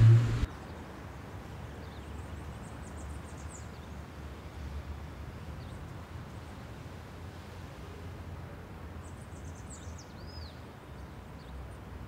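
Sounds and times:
low rumble: 0.0s - 0.5s.

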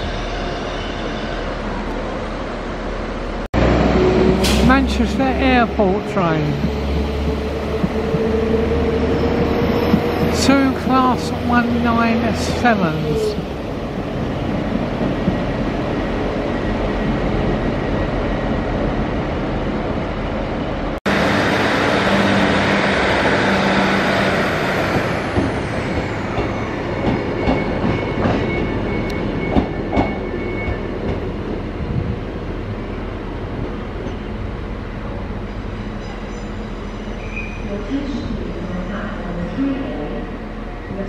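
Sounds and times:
train wheel noise: 3.6s - 16.8s, 21.1s - 32.2s.

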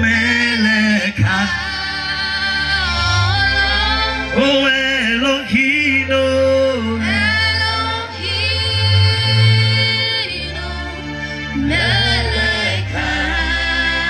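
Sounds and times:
gospel singing: 0.0s - 14.0s
keyboard chords: 0.0s - 14.0s.

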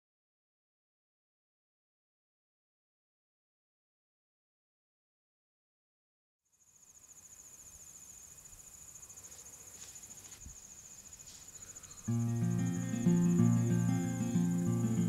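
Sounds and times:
crickets trilling: 6.5s - 15.0s
soft field ambience: 6.5s - 15.0s.

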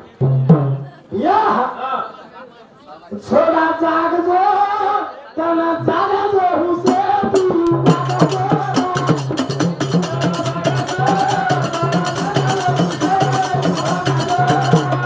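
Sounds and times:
man singing into a microphone: 3.1s - 15.0s
low drum beat: 6.9s - 15.0s.

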